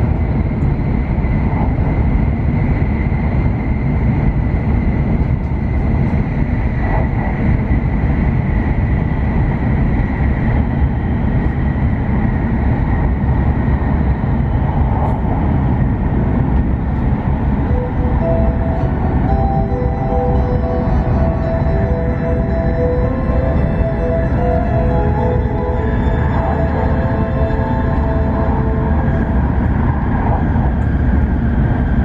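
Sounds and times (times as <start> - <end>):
train wheels rumbling on rails: 0.0 - 32.0
faint high whine: 17.2 - 32.0.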